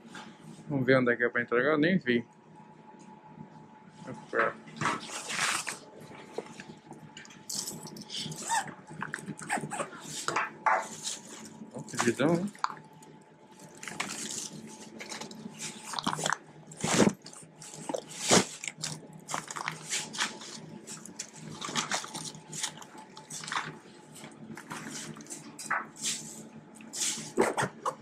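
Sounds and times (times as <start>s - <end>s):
faint steady hum: 0.0s - 28.0s
takeaway bags crinkling and rustling: 13.6s - 23.8s.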